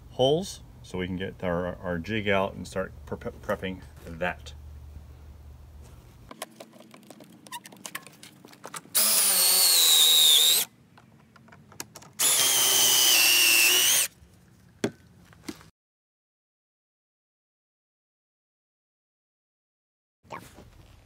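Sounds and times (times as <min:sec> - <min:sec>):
clicks and knocks of handling: 0:06.3 - 0:08.9, 0:10.9 - 0:12.2
cordless drill whining: 0:09.0 - 0:10.7, 0:12.2 - 0:14.1.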